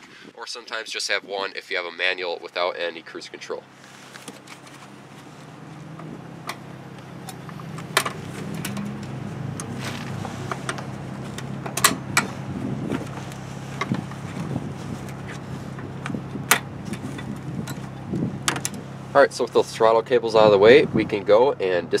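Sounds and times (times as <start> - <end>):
steady low hum: 1.8 - 22.0.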